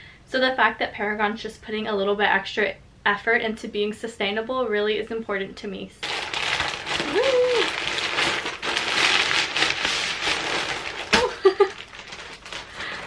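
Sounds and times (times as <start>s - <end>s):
plastic bags crinkling: 6.0s - 13.0s
person laughing: 11.1s - 11.8s.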